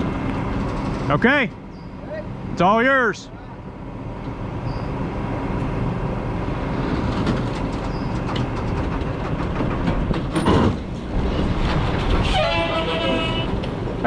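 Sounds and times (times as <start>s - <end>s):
tyres rumbling over trailer deck: 0.0s - 14.0s
loud metal clunk: 7.1s - 13.7s.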